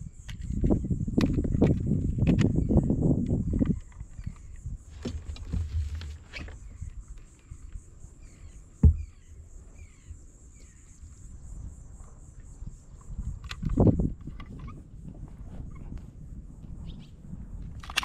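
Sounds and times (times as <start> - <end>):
small clicks and rustles: 0.2 - 7.9, 13.0 - 14.8
knock against kayak hull: 8.8 - 9.2.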